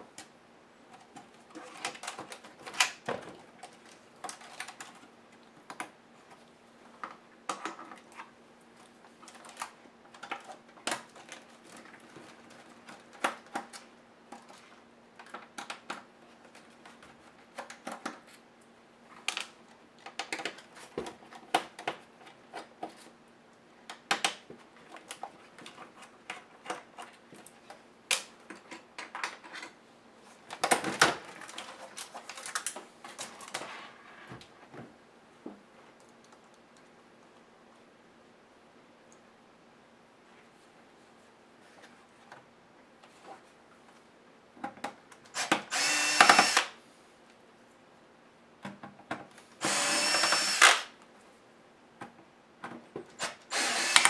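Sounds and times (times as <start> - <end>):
screwdriver undoing screws: 45.4 - 46.7, 49.6 - 50.9, 53.2 - 54.0.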